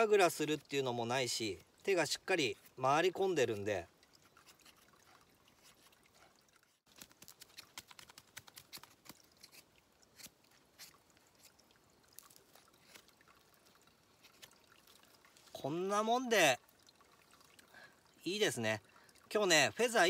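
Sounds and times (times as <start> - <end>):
knife scraping wood: 7.2 - 11.6.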